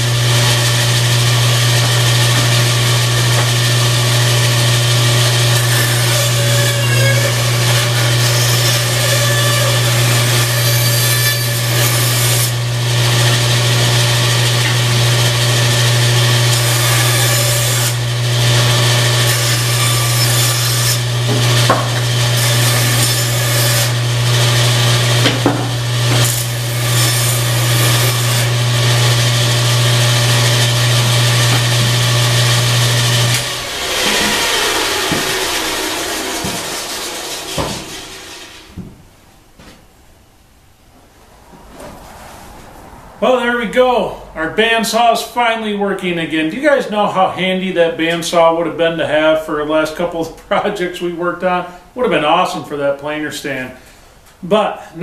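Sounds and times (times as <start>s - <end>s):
bandsaw cutting wood: 0.0s - 38.9s
bandsaw motor hum: 0.0s - 38.9s.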